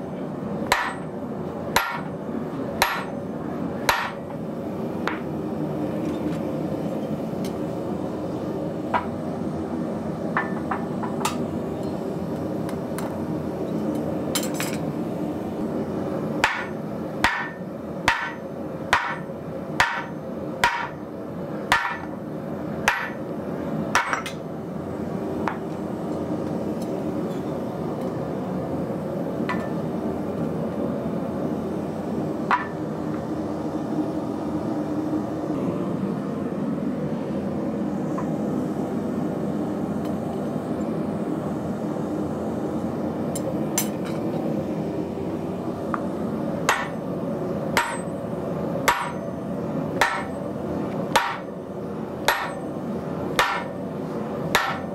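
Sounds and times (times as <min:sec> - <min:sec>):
steady humming drone: 0:00.0 - 0:54.9
hammer striking steel: 0:00.7 - 0:01.1, 0:01.8 - 0:02.1, 0:02.8 - 0:03.2, 0:03.9 - 0:04.2, 0:16.4 - 0:21.0, 0:21.7 - 0:22.1, 0:22.9 - 0:23.2, 0:46.7 - 0:47.0, 0:47.8 - 0:48.2, 0:48.9 - 0:49.3, 0:50.0 - 0:50.3, 0:51.2 - 0:51.5, 0:52.3 - 0:52.6, 0:53.4 - 0:53.7, 0:54.6 - 0:54.9.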